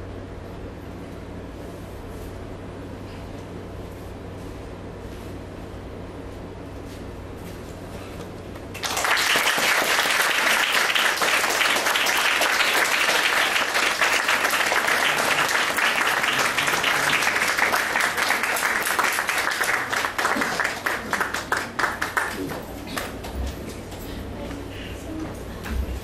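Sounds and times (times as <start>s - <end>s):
audience applauding: 8.7s - 23.4s.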